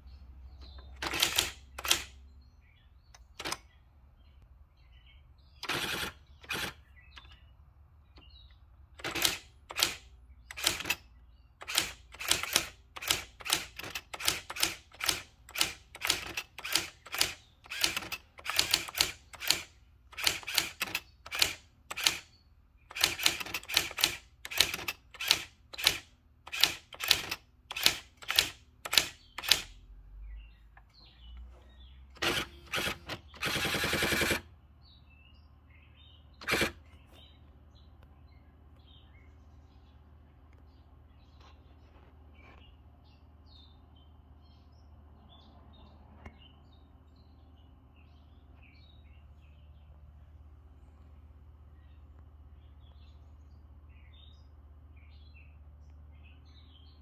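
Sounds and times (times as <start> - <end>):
typewriter mechanical sound: 0.9 - 2.2, 3.2 - 3.6, 5.6 - 7.3, 8.9 - 22.3, 22.9 - 29.8, 32.2 - 34.5, 36.4 - 36.8.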